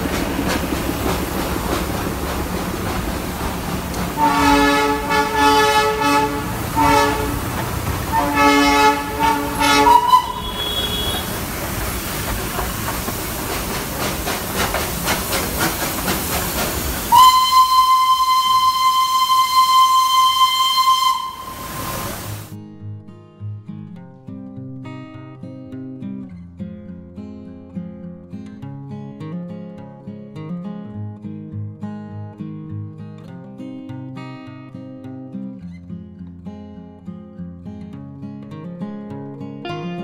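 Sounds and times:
train carriages rumbling on track: 0:00.0 - 0:22.5
steam locomotive whistle: 0:03.9 - 0:11.7, 0:16.1 - 0:22.5
steady high whistle tone: 0:09.6 - 0:11.4, 0:17.1 - 0:22.5.

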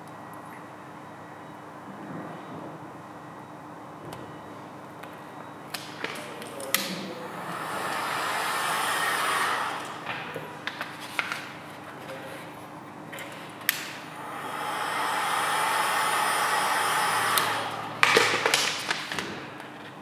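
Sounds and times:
heat gun blowing air: 0:07.2 - 0:10.7, 0:14.0 - 0:18.8.

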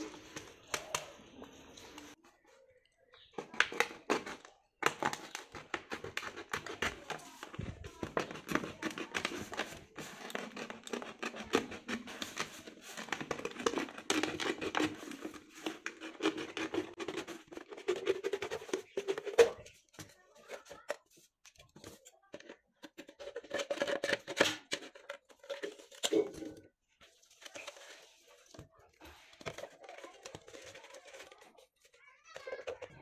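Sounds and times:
plastic crackling and crinkling: 0:00.0 - 0:33.0
knife sawing plastic bottle: 0:03.7 - 0:19.6.

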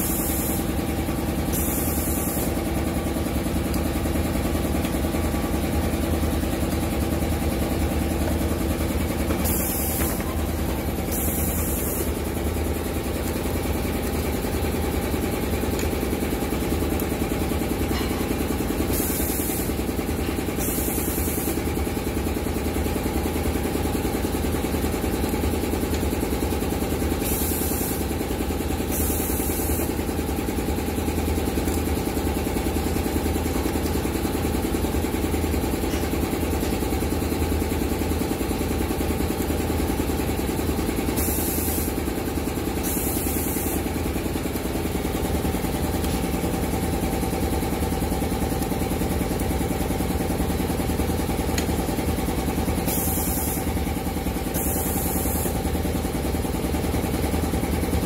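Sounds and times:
short air hisses: 0:00.0 - 0:00.7, 0:01.5 - 0:02.6, 0:09.4 - 0:10.3, 0:11.1 - 0:12.2, 0:18.9 - 0:19.8, 0:20.6 - 0:21.6, 0:27.2 - 0:28.0, 0:28.9 - 0:29.9, 0:41.2 - 0:42.0, 0:42.8 - 0:43.9, 0:52.9 - 0:53.7, 0:54.5 - 0:55.6
riveting machine humming: 0:00.0 - 0:58.0.

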